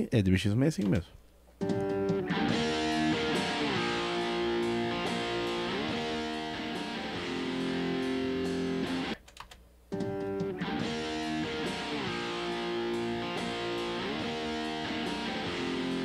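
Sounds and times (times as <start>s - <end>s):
electric guitar chords: 1.6s - 9.2s, 9.9s - 16.0s.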